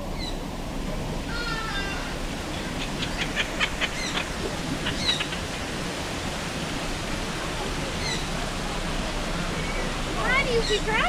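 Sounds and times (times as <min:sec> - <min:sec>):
flowing water: 0:00.0 - 0:11.0.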